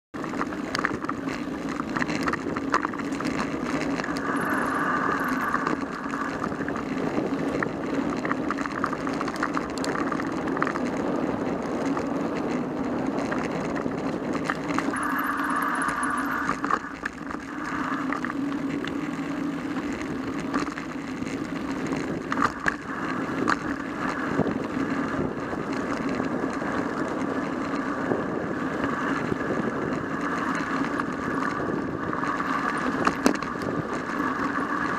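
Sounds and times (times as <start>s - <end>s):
rattling clicks over bumps: 0.2s - 4.4s, 5.2s - 15.0s, 16.4s - 27.9s, 29.1s - 34.9s
bike tyres rumbling on dirt: 0.2s - 34.9s
high buzz: 3.7s - 6.8s, 14.8s - 19.0s.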